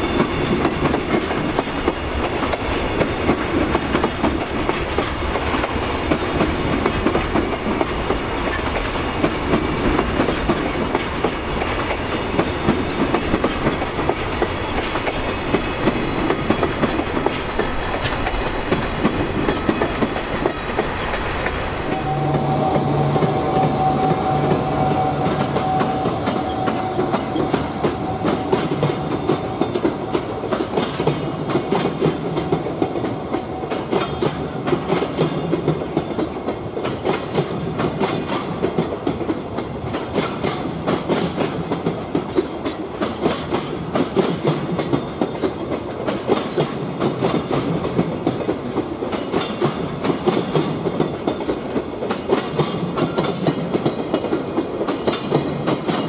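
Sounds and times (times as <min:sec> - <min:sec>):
train wheels clattering over rail joints: 0:00.0 - 0:21.7, 0:25.2 - 0:56.0
high steady tone: 0:21.8 - 0:30.5.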